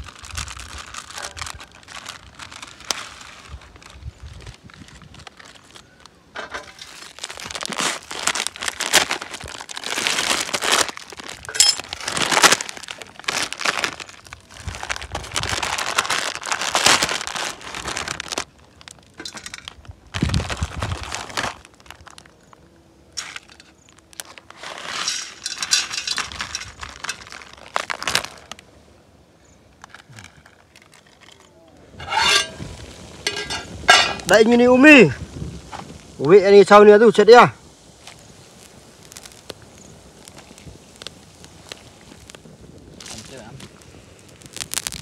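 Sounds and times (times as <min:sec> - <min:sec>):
plastic packets crinkling: 0:00.0 - 0:28.7, 0:29.7 - 0:35.1, 0:38.0 - 0:45.0.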